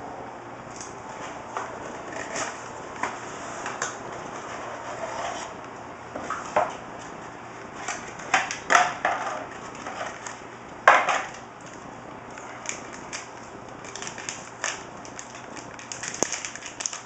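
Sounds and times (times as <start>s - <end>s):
crinkling plastic bag: 11.2s - 17.0s.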